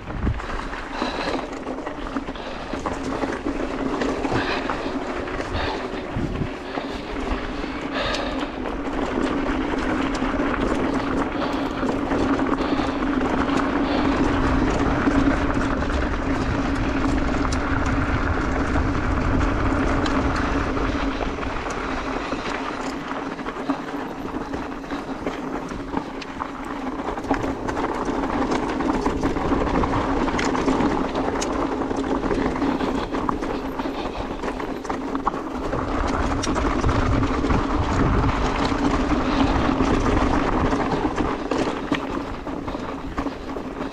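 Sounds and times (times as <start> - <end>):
bike rattling over stones: 0.0 - 43.9
bike tyres rolling on gravel: 0.0 - 43.9.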